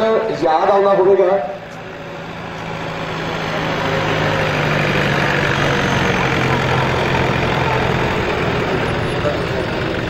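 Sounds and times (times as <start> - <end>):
tractor engine running: 0.1 - 10.0.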